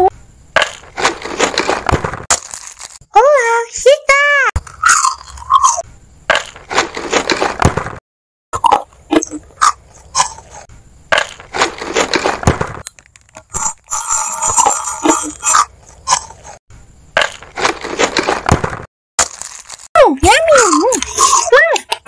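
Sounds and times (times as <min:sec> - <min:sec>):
biscuit crunching: 0:00.6 - 0:03.0, 0:17.2 - 0:19.9
plastic wrapper tearing and crinkling: 0:01.0 - 0:03.0, 0:19.2 - 0:19.9.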